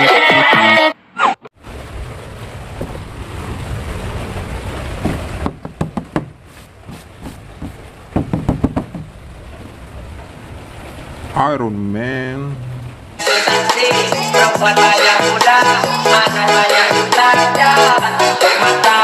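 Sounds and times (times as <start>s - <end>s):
low rumble and hiss: 1.6s - 13.2s
hand tapping cardboard box: 5.5s - 9.1s
clicks and knocks: 7.6s - 9.2s.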